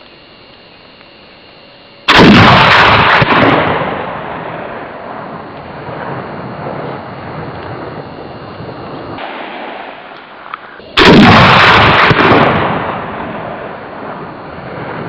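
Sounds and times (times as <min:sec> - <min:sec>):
rifle shot blast: 0:02.1 - 0:06.8, 0:09.2 - 0:15.0.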